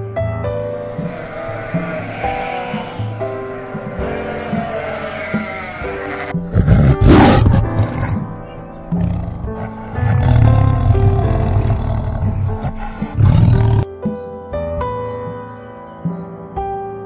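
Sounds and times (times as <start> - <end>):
background music: 0.0 - 17.0
tiger roaring and growling: 0.7 - 13.8.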